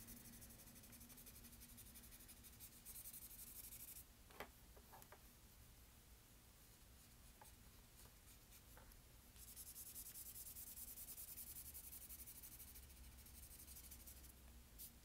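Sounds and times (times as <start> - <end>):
pencil shading on paper: 0.0 - 4.0, 9.4 - 14.9.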